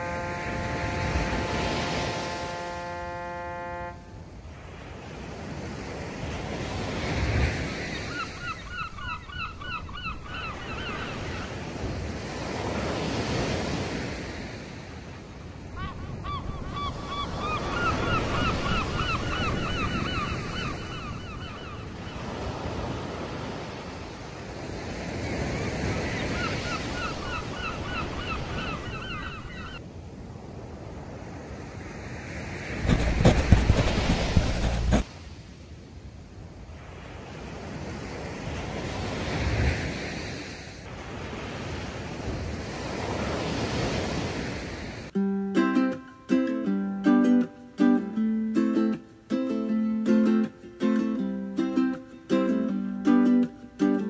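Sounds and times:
horn holding steady note: 0.0 - 4.2
sea waves washing in: 0.0 - 45.2
gulls calling: 7.6 - 11.8, 15.7 - 22.7, 25.3 - 29.8.

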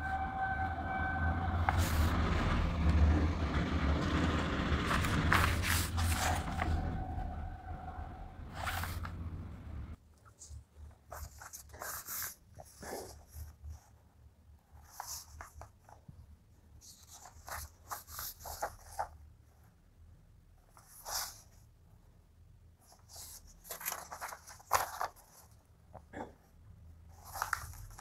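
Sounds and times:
faint low hum: 0.0 - 28.0
paper pages rustling: 1.7 - 2.1, 4.9 - 7.4, 8.5 - 9.3, 10.2 - 14.0, 14.7 - 16.2, 16.8 - 19.3, 20.7 - 21.6, 22.8 - 26.0, 27.1 - 28.0.

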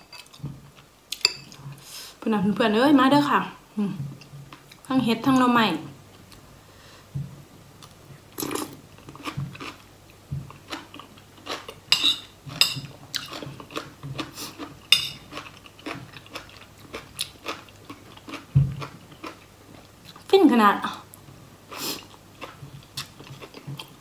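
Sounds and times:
metal spoon clinking on bowl: 14.9 - 15.2.

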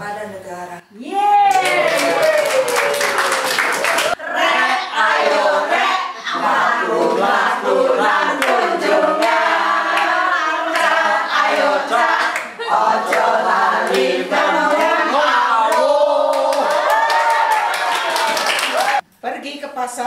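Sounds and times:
hand clapping: 1.5 - 4.2, 15.7 - 19.0
group chanting a cheer: 1.5 - 19.0.

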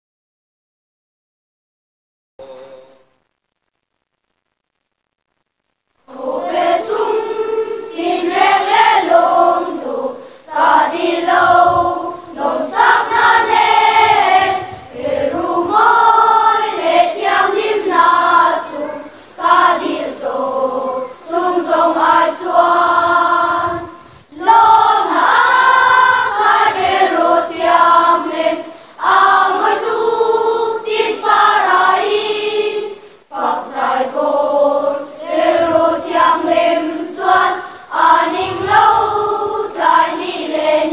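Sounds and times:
children's choir singing: 6.1 - 40.9.

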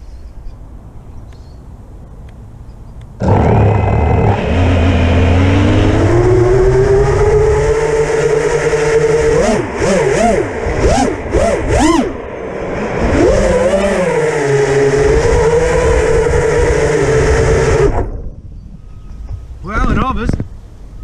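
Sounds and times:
wind rushing over microphone: 0.6 - 21.0
drone motors whining: 3.2 - 19.5.

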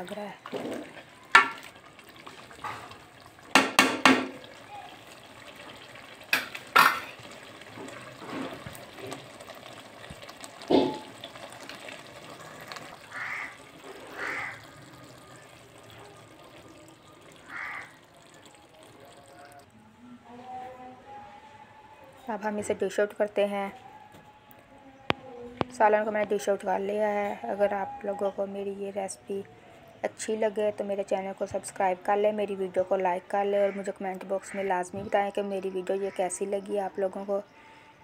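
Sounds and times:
ladle stirring thick curry: 0.4 - 19.6
ladle clanging against metal pot: 0.6 - 1.7, 10.7 - 11.2.

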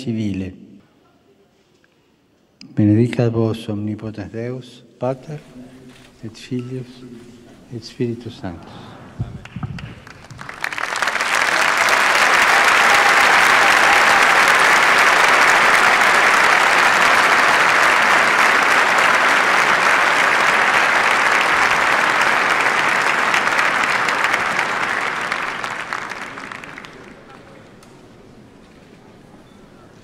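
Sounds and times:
large crowd applauding: 9.1 - 28.0.

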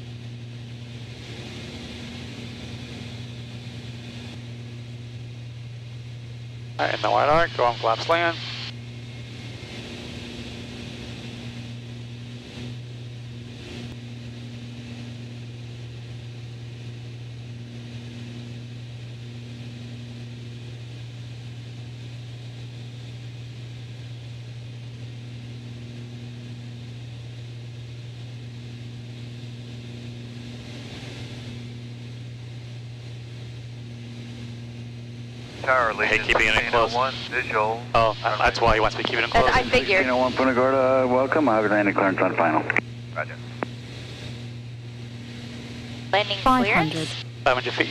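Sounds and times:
aircraft engines droning: 0.0 - 47.9
higher hum: 35.6 - 40.6, 46.2 - 47.3.

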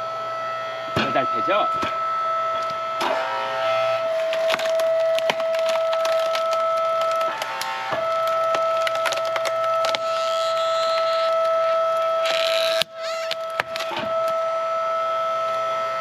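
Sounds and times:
hydraulic log splitter whining: 0.0 - 16.0
log cracking and splintering: 4.1 - 14.4.

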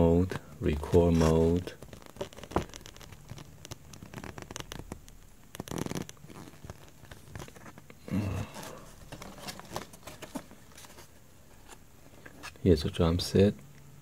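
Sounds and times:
paper rustling: 0.6 - 12.6
cardboard packaging moved: 5.7 - 11.7.

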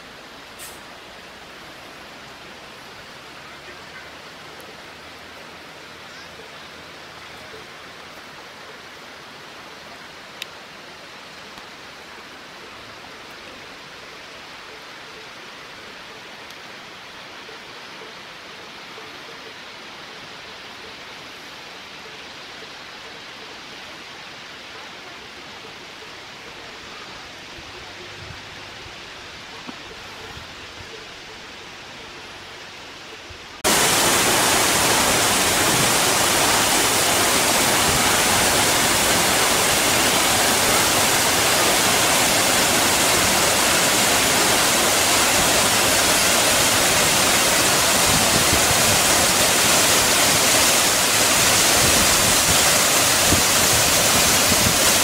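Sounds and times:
faint rushing hiss: 0.0 - 12.2, 32.3 - 55.0
waterfall pouring into pool: 33.6 - 55.0.

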